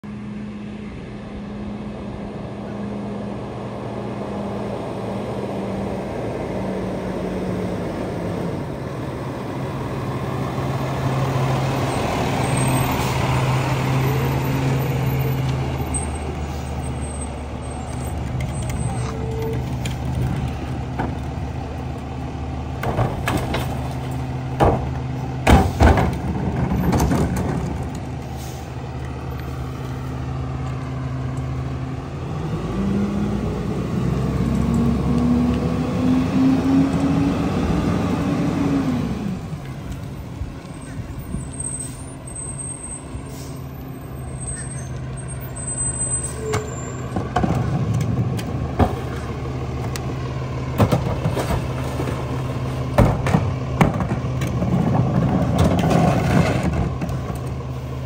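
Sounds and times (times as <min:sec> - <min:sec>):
garbage truck engine running: 0:05.4 - 0:58.0
recycling clanking into hopper: 0:22.8 - 0:27.9.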